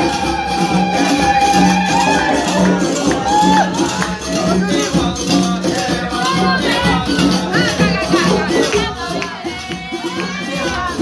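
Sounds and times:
hand drums beating: 0.0 - 11.0
voices singing: 0.0 - 11.0.

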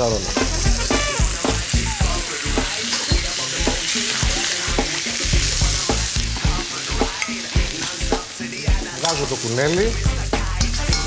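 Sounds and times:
meat sizzling in hot fat: 0.0 - 11.0
metal tongs knocking pot: 10.6 - 11.0.

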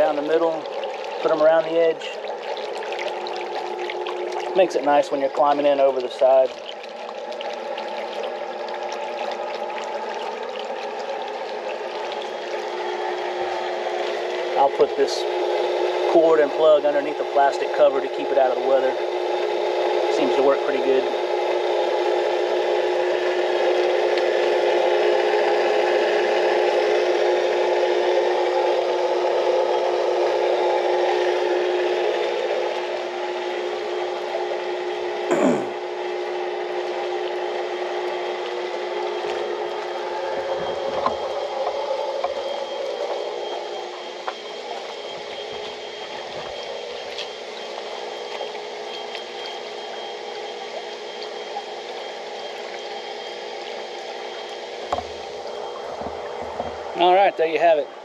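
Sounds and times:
pool pump humming: 0.0 - 58.0
water circulating: 0.0 - 58.0.

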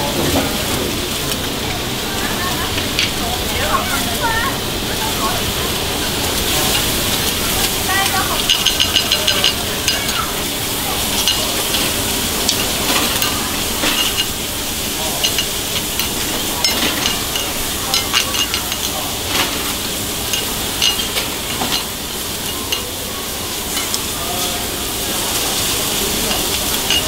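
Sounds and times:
meat sizzling on hot plate: 0.0 - 27.0.

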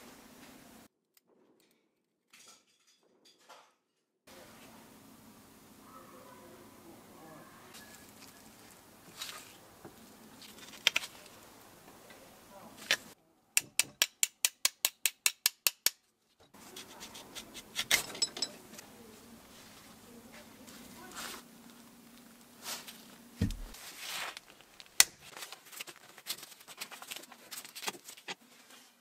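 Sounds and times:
small metal parts clinking: 17.9 - 18.7.

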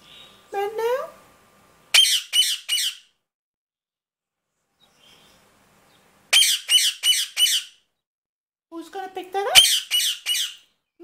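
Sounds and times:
parakeet squawking: 1.9 - 3.1, 6.3 - 7.8, 9.5 - 10.7.

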